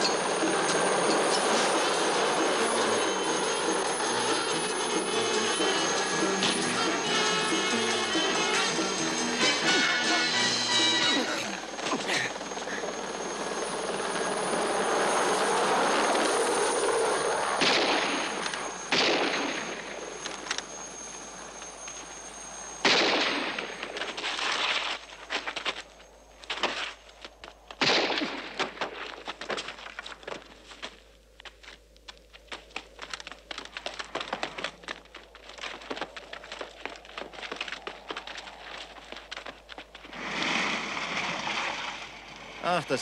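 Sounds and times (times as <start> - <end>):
pistol shots: 17.6 - 19.7, 22.8 - 23.7, 27.8 - 28.9
knocks and scuffs: 28.6 - 40.1.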